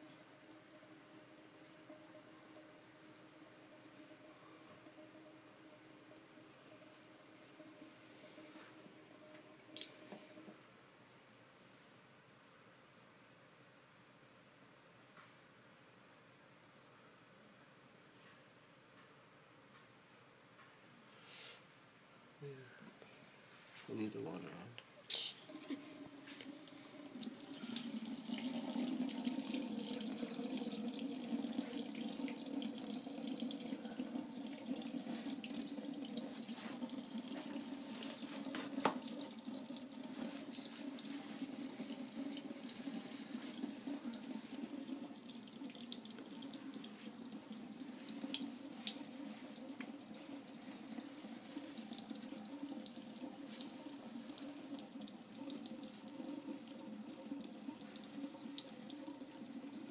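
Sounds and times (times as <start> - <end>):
tap water running into sink: 0.0 - 10.7, 25.5 - 59.9.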